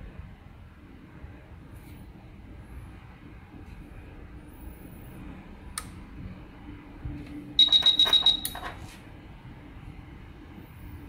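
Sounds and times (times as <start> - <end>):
high-pitched electronic beep: 7.6 - 8.6.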